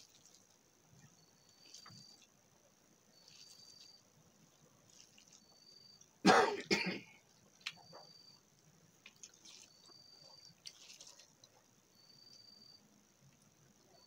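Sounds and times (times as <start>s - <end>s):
woman coughing: 6.2s - 7.1s.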